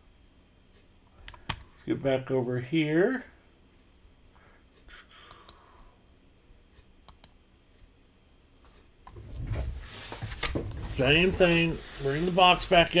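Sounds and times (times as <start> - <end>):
computer mouse clicks: 5.1 - 5.7, 7.0 - 7.4.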